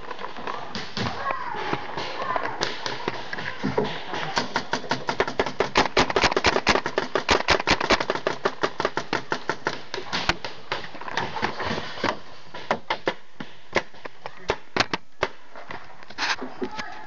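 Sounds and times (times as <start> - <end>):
paintball markers firing: 2.0 - 11.4.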